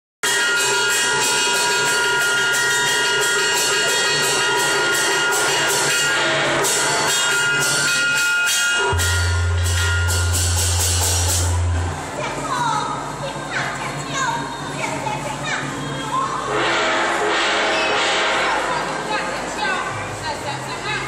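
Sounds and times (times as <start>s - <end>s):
sustained ringing tones: 0.2s - 11.9s
opera percussion strokes: 0.2s - 12.2s
deep steady hum: 8.8s - 13.2s.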